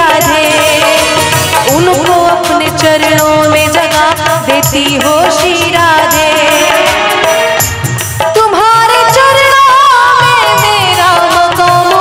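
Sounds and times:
woman singing: 0.0 - 7.6, 8.2 - 12.0
hand drum: 0.0 - 12.0
harmonium: 0.0 - 12.0.

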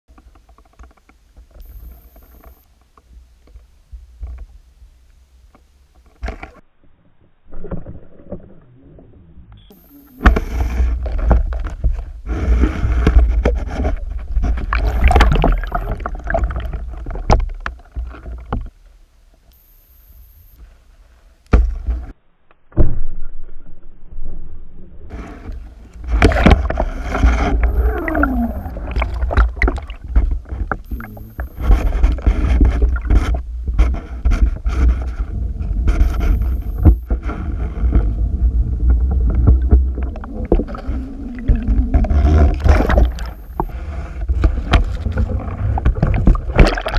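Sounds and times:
muffled underwater churning: 7.2 - 21.0, 25.1 - 46.9
sharp underwater bursts: 14.7 - 16.7, 26.1 - 33.2.

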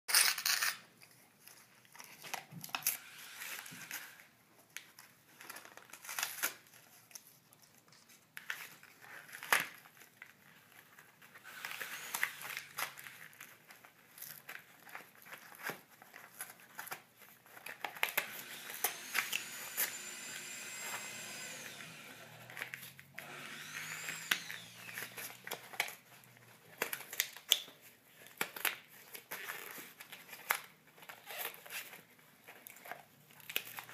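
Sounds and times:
dog chewing and tearing cardboard: 12.4 - 18.4.

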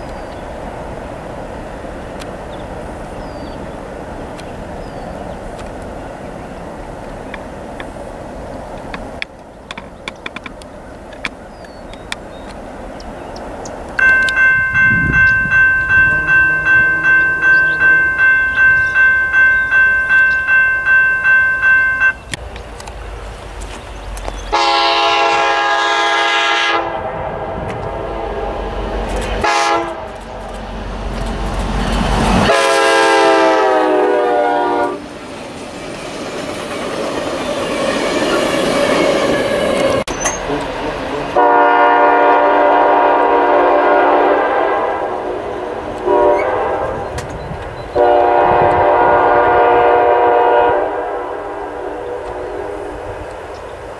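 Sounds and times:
train rumble: 0.0 - 53.9
locomotive air horn blasts: 14.0 - 19.1, 24.5 - 28.6, 29.4 - 30.2, 32.4 - 35.1, 40.4 - 45.4, 46.0 - 47.2, 48.0 - 53.1
crossing bell ringing: 14.0 - 22.4.

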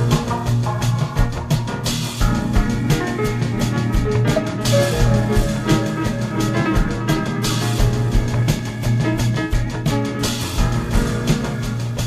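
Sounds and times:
drum kit beat: 0.0 - 12.0
sustained instrumental notes: 2.4 - 8.8.

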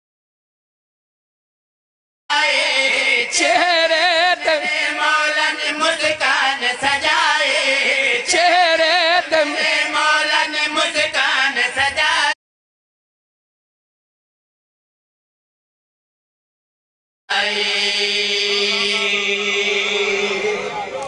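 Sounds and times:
man singing: 2.3 - 12.4, 17.3 - 21.0.

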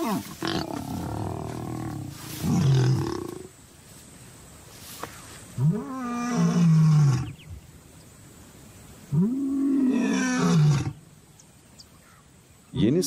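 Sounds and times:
lion roaring: 0.0 - 3.5, 9.1 - 11.0.

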